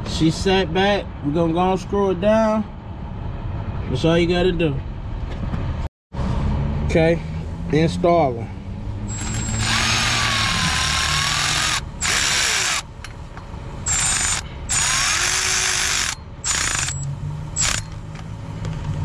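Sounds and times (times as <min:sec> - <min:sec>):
cordless ratchet running: 0:09.1 - 0:12.9, 0:13.9 - 0:18.0.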